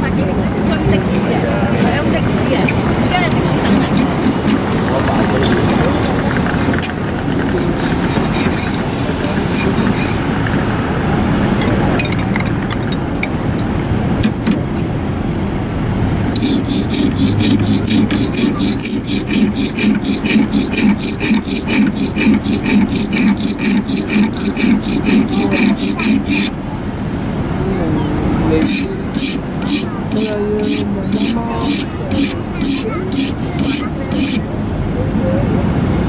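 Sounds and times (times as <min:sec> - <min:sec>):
street traffic rumble: 0:00.0 - 0:36.0
hand scraper scraping blade: 0:00.1 - 0:10.2, 0:16.4 - 0:26.6, 0:28.5 - 0:34.4
whetstone rasping on knife blade: 0:03.7 - 0:04.7, 0:07.6 - 0:10.2, 0:16.4 - 0:26.5, 0:28.6 - 0:34.4.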